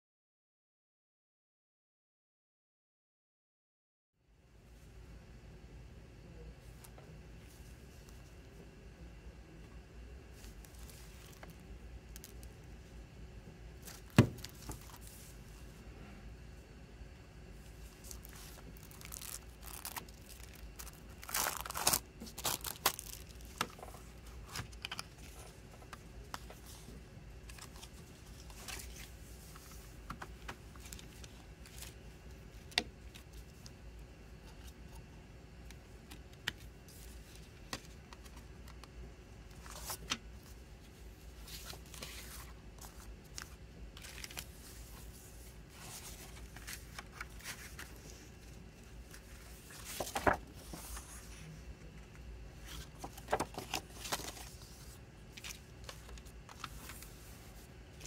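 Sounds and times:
paper rustling: 17.8s - 33.6s, 39.6s - 51.5s, 52.6s - 58.0s
plastic wrap tearing and crinkling: 18.0s - 23.7s.

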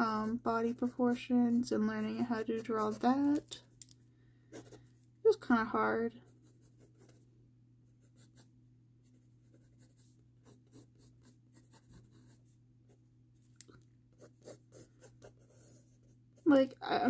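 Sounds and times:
pencil scratching on paper: 0.0s - 3.4s, 4.5s - 4.8s, 6.3s - 7.3s, 9.4s - 13.0s, 14.2s - 16.6s.

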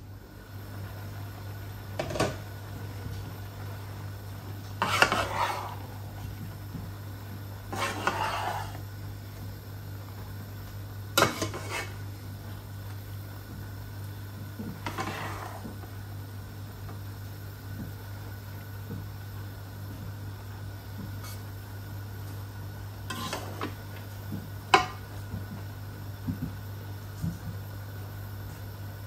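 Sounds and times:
steady low hum: 0.0s - 29.0s
metal utensil scraping a pot: 4.8s - 5.8s, 7.7s - 8.8s, 11.2s - 12.0s, 23.1s - 23.7s.

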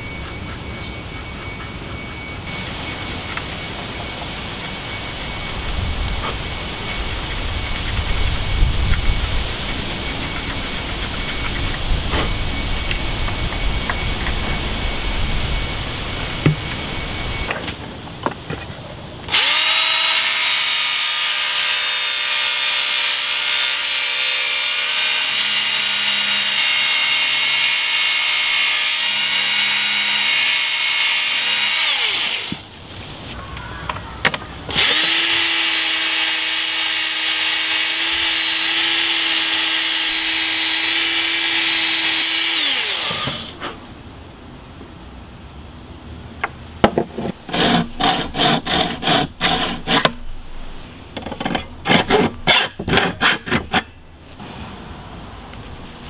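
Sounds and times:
hacksaw cutting metal: 19.3s - 32.7s, 34.7s - 43.6s, 47.2s - 50.3s, 51.4s - 54.0s
rotary tool grinding metal: 19.3s - 32.7s, 34.7s - 43.6s, 47.5s - 50.2s, 51.3s - 54.0s.

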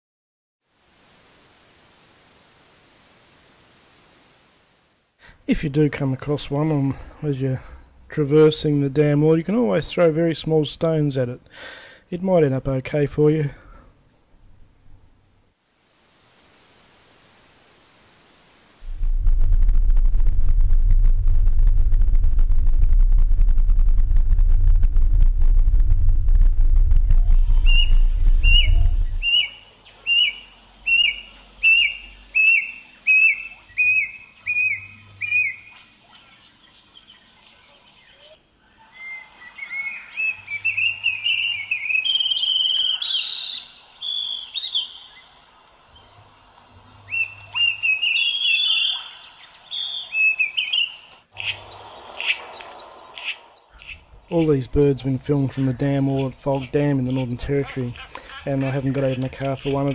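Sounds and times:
steady high hiss: 0.7s - 19.4s, 26.8s - 59.9s
car rumble: 18.8s - 29.2s
cuckoo whistled calls: 27.1s - 46.2s, 46.9s - 54.5s
birds chirping: 27.1s - 59.9s.

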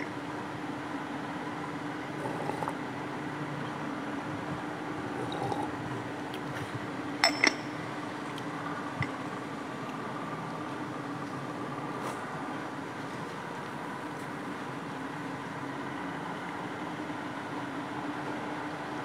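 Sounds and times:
person slurping from a mug: 2.1s - 2.8s, 5.1s - 6.0s
ceramic mug clinking: 7.2s - 8.0s.

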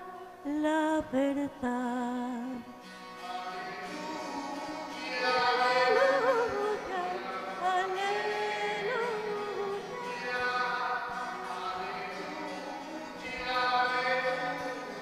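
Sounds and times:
woman singing with vibrato: 0.0s - 2.8s, 5.4s - 10.1s.

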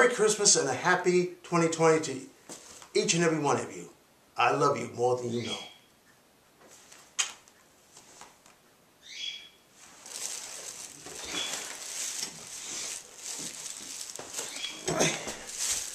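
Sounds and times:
clothing rustling: 9.8s - 15.9s.

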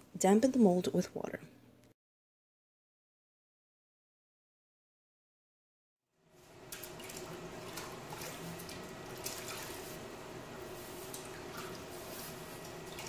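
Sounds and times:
water sloshing in bucket: 6.4s - 13.0s
small water splashes: 6.5s - 10.1s.

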